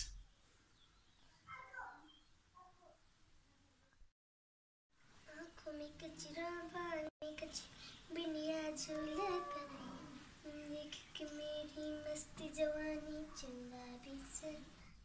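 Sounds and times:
child singing: 5.3 - 14.8.

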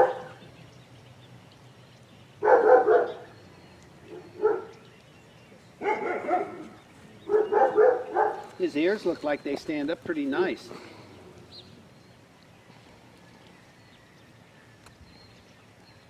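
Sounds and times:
puppy barking: 0.0 - 0.4, 2.4 - 3.3, 4.1 - 4.8, 5.8 - 8.6.

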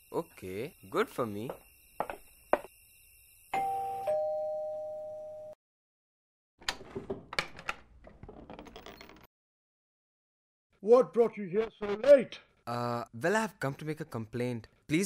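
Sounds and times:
two-tone doorbell chime: 3.6 - 5.6
clicks and knocks: 6.6 - 9.3.

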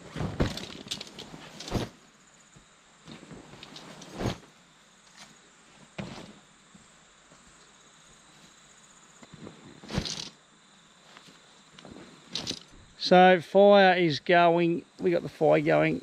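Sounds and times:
objects being handled: 3.1 - 4.5.

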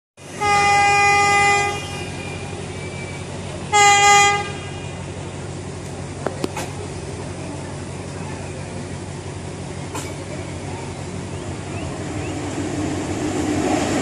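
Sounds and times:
train horn blasts: 0.3 - 2.5, 3.7 - 5.0.

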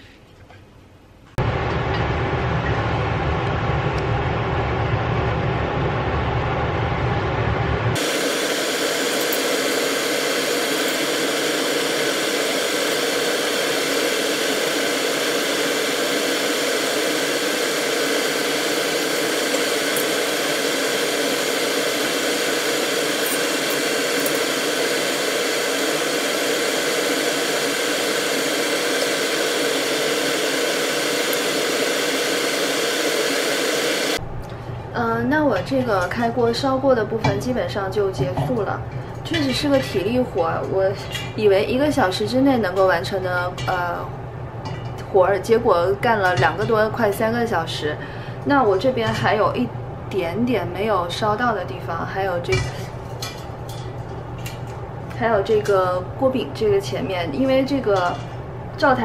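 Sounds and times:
deep rumble: 1.4 - 8.0.

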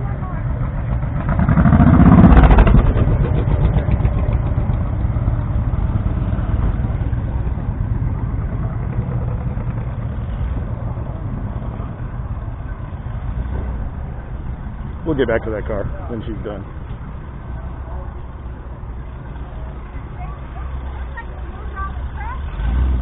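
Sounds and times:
small motorcycle engine idling: 0.0 - 15.2
motorcycle passing by: 0.0 - 16.6, 19.2 - 23.0.

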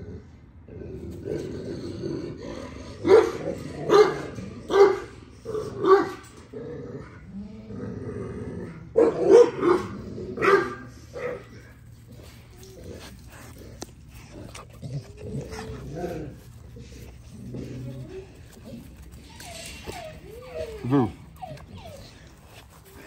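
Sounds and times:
dogs growling: 0.0 - 23.0
dogs barking sharply: 3.0 - 5.1, 9.0 - 11.5.

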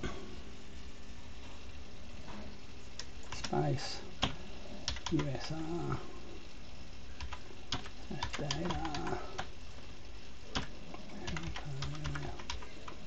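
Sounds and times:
keyboard keys tapping: 4.2 - 5.3, 7.2 - 9.5, 10.5 - 13.0.

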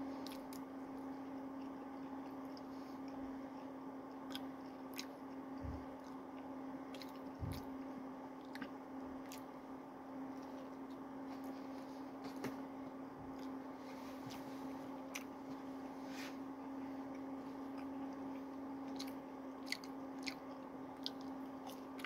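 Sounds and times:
steady low hum: 0.0 - 22.0
person chewing food: 0.2 - 9.5, 13.3 - 13.6, 15.0 - 15.5, 17.0 - 22.0.

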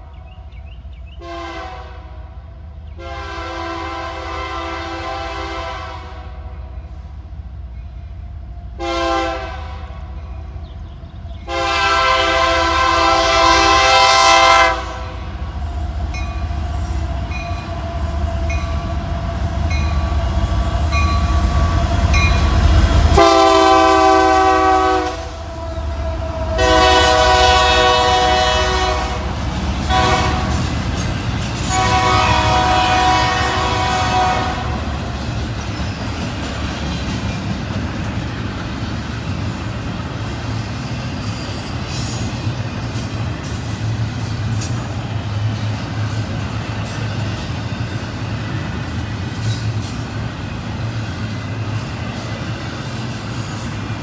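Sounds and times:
diesel locomotive rumble: 0.0 - 54.0
train air horn blasts: 1.2 - 2.4, 3.0 - 7.1, 8.7 - 10.2, 11.4 - 15.5, 16.6 - 31.0, 31.6 - 35.2
train cars clattering: 6.6 - 54.0.

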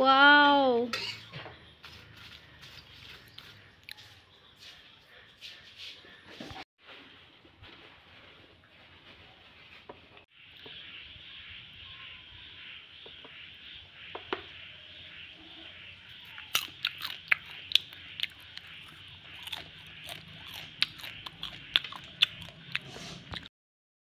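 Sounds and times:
popcorn crunching: 16.2 - 23.5.

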